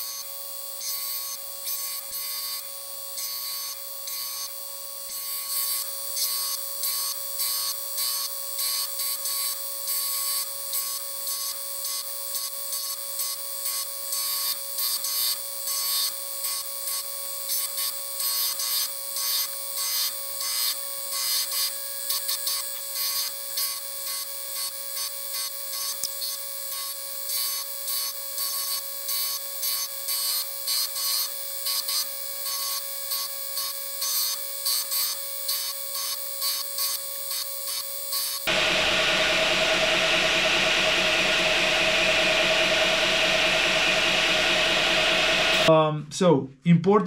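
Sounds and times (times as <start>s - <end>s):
belt grinder whine: 20.0s - 45.7s.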